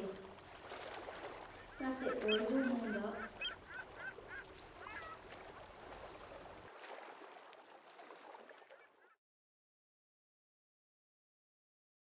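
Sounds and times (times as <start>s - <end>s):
water lapping and gurgling: 0.0s - 9.2s.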